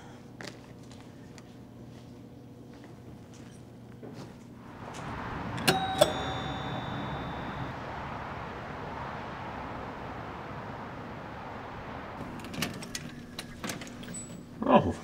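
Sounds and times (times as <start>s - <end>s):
city traffic hum: 1.6s - 15.0s
two-note doorbell chime: 5.5s - 7.7s.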